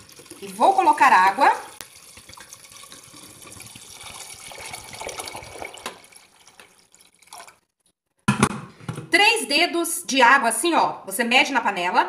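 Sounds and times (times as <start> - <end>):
water pouring into a metal pot: 0.0 - 7.7.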